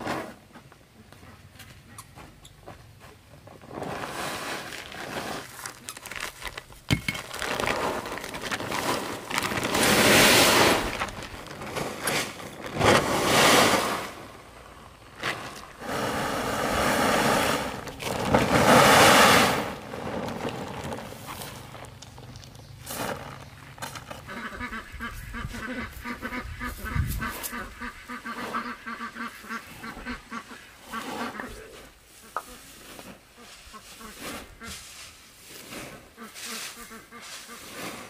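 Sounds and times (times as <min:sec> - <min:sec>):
plastic tarp rustling: 0:03.4 - 0:27.6
dried chips rattling down tarp: 0:03.6 - 0:14.3, 0:15.2 - 0:24.8.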